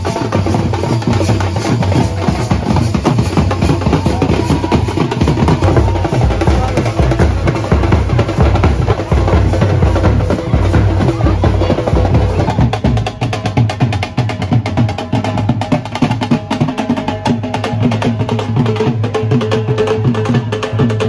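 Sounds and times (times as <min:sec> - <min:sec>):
fast percussion music: 0:00.0 - 0:21.0.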